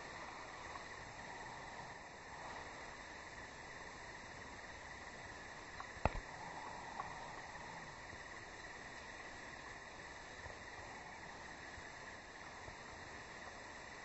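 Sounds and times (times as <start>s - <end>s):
faint ticks: 0.0s - 14.0s
high insect drone: 0.0s - 14.0s.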